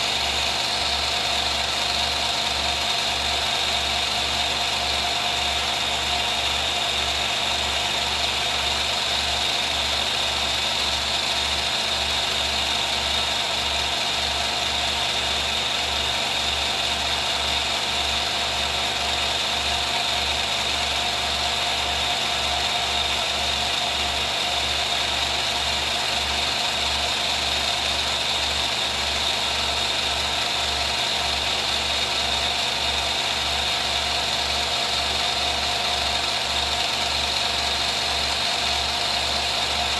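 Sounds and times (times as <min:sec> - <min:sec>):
film projector whirring: 0:00.0 - 0:39.9.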